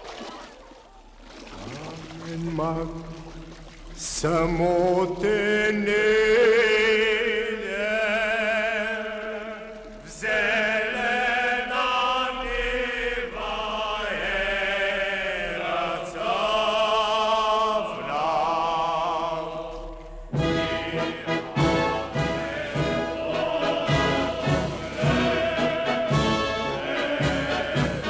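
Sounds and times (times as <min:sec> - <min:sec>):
choir chanting: 0:06.9 - 0:28.0.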